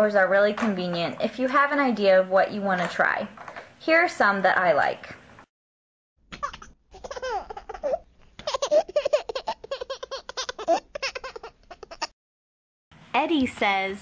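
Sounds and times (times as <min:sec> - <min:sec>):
baby giggling: 0:06.4 - 0:12.1.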